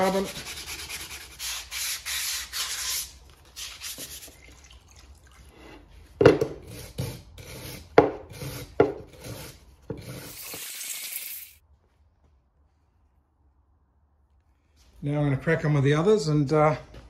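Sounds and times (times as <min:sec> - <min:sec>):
sanding metal by hand: 0:00.0 - 0:03.1.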